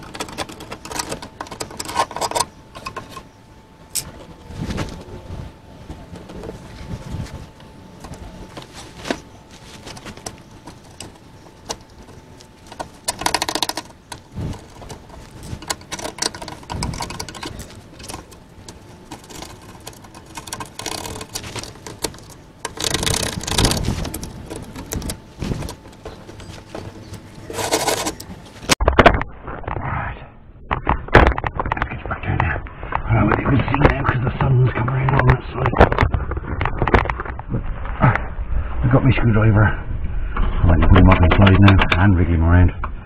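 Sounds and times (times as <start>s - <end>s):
screwdriver scraping and tapping metal: 0.0s - 3.3s, 8.0s - 28.3s.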